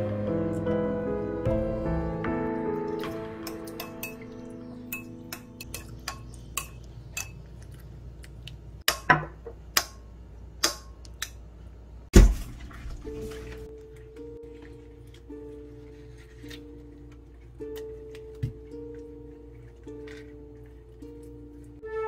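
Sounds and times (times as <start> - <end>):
metal spoon clinking against glass: 4.9 - 7.3.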